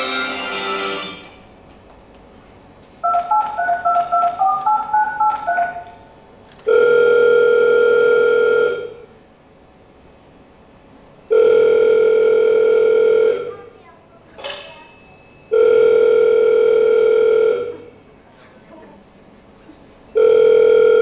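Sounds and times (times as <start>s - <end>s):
telephone ringback tone: 6.7s - 9.0s, 11.3s - 13.5s, 15.5s - 17.7s, 20.2s - 21.0s.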